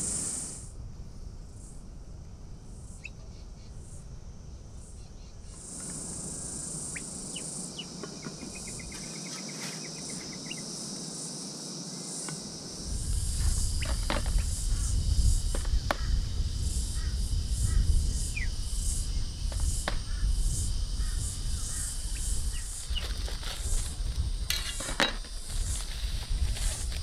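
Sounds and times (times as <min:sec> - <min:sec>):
insects chirring: 0:00.0 - 0:27.0
steady low rumble: 0:12.6 - 0:24.5.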